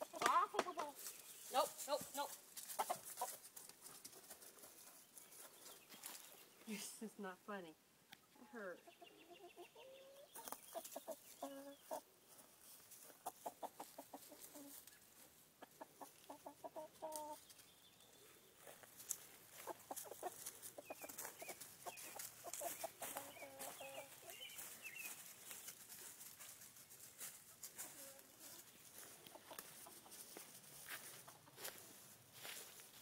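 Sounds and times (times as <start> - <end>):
chickens clucking: 0.0 - 6.5, 8.2 - 32.8
footsteps through undergrowth: 0.0 - 6.8, 10.3 - 33.0
high chirping calls: 20.8 - 25.7.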